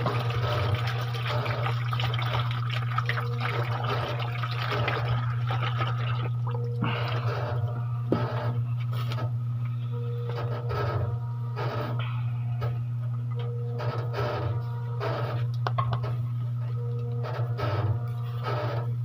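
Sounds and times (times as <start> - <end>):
constant low hum: 0.0 - 19.0.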